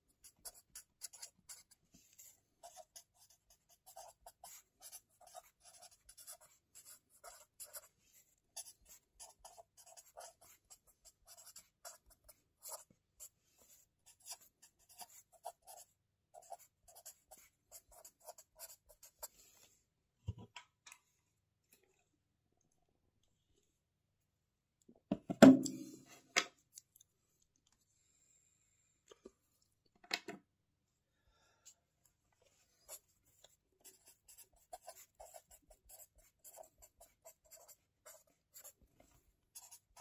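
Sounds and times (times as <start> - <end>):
pen scratching on paper: 0.0 - 19.4, 32.8 - 38.8, 39.5 - 40.0.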